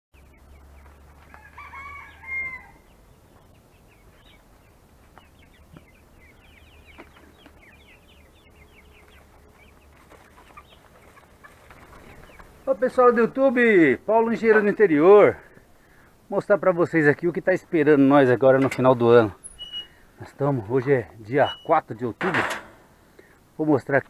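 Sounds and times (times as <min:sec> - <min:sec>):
rooster crowing: 0:01.2 - 0:02.9.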